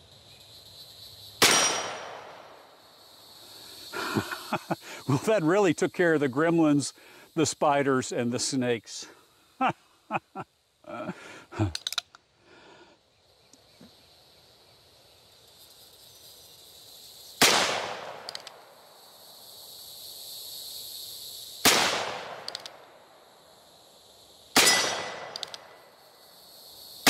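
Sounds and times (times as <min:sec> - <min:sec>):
faint ticks: 0:18.2 - 0:18.6, 0:22.4 - 0:22.8, 0:25.3 - 0:25.8.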